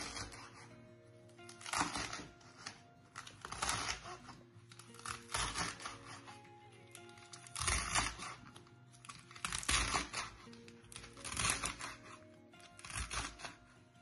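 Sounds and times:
background music: 0:00.0 - 0:14.0
knife chopping on wooden board: 0:09.4 - 0:10.4.

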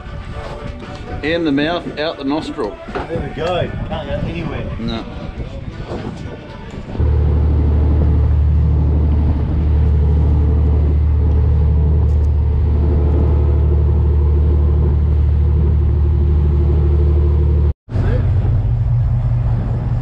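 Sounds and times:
boat engine droning: 0:06.8 - 0:20.0.

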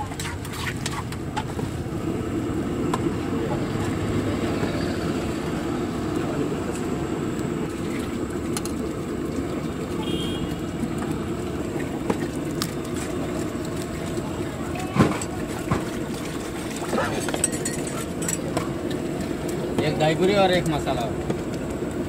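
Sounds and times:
low background rumble: 0:01.1 - 0:22.0
metal utensils clinking on pan: 0:16.9 - 0:18.7.

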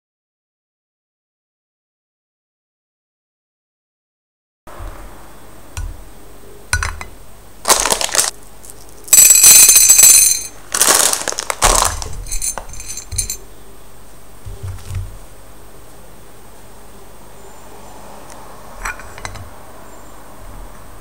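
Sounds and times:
popcorn kernels clattering on glass: 0:07.7 - 0:08.3, 0:09.1 - 0:13.4.

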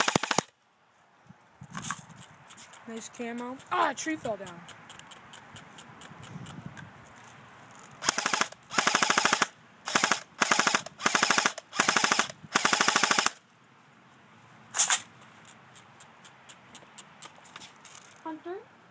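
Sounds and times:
airsoft gun firing bursts: 0:00.0 - 0:00.5, 0:08.0 - 0:13.4.

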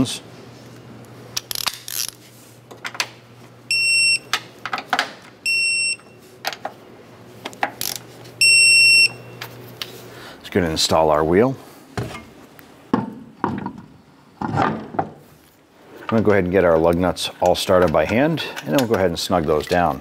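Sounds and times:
torque wrench beeping: 0:03.7 - 0:04.4, 0:05.4 - 0:06.2, 0:07.8 - 0:09.4.

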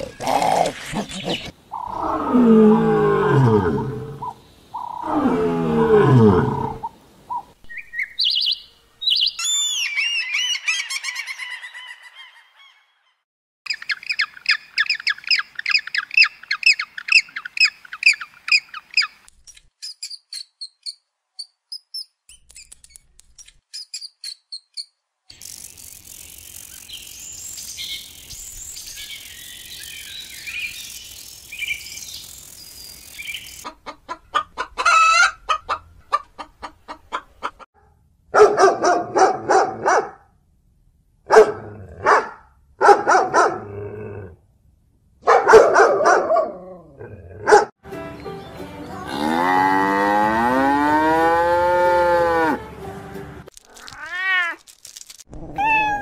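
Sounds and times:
high bird chirps: 0:07.3 - 0:12.9, 0:13.7 - 0:22.8, 0:23.7 - 0:33.7
fast repeated bird calls: 0:13.7 - 0:21.0
fowl clucking and crowing: 0:33.6 - 0:37.6.

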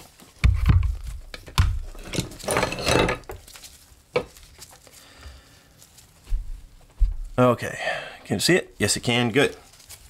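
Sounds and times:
rustling scrape: 0:01.9 - 0:07.4, 0:08.8 - 0:10.0.

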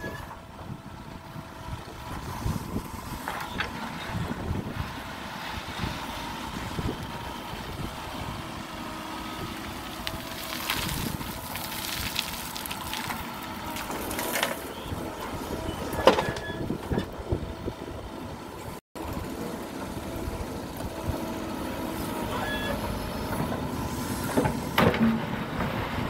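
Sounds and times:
diesel engine running: 0:00.0 - 0:26.0
gravel crunching against bucket: 0:09.9 - 0:14.7.

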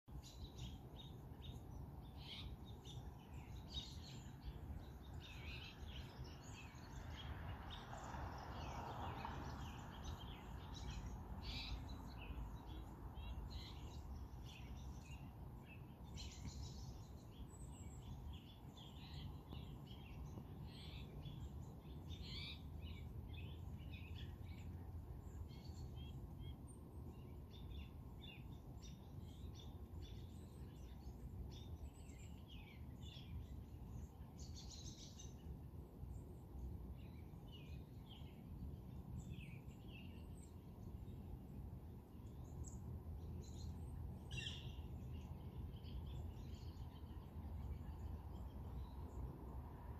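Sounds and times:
songbirds chirping: 0:00.0 - 0:49.9
low background rumble: 0:00.2 - 0:49.9.

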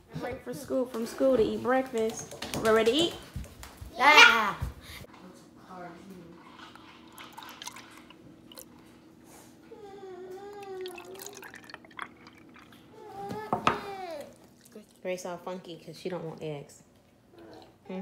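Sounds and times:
child's high voice: 0:03.9 - 0:04.7
milk pouring into mugs: 0:06.4 - 0:09.0, 0:10.5 - 0:15.0.

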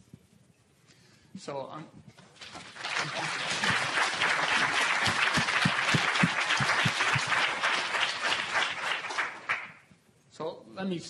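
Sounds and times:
audience applauding: 0:02.4 - 0:09.9.

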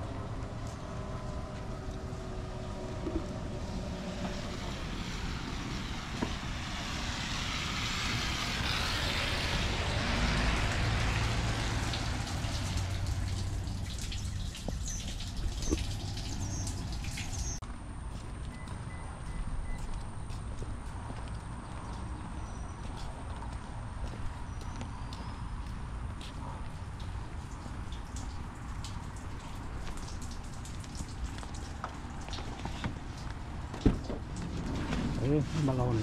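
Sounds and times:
vehicle rumble: 0:00.0 - 0:36.0
tyre hiss on wet road: 0:03.6 - 0:14.8.

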